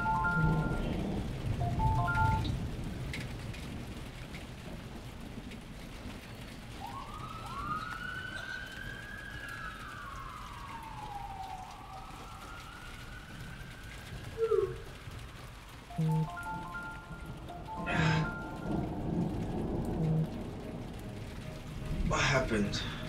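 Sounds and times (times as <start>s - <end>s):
marimba phone ringtone: 0.0s - 1.0s, 1.6s - 2.5s, 15.9s - 19.1s
siren wailing: 0.0s - 2.6s, 6.6s - 23.0s
hiss like rain: 0.0s - 23.0s.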